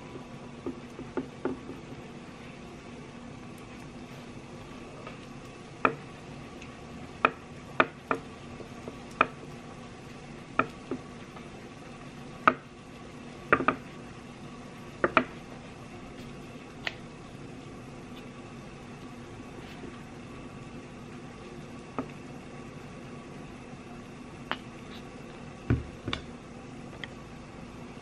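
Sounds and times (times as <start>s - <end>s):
knife tapping on wooden board: 13.5s - 13.8s.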